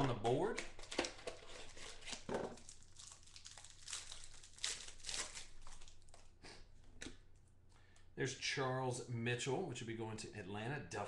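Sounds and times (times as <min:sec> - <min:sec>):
plastic crinkling and rustling: 0:00.0 - 0:06.3.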